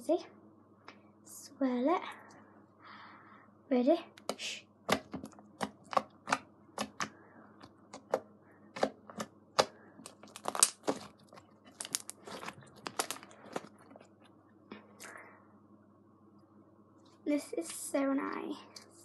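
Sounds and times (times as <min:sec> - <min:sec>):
foam bead slime clicking and popping: 0:08.8 - 0:13.6.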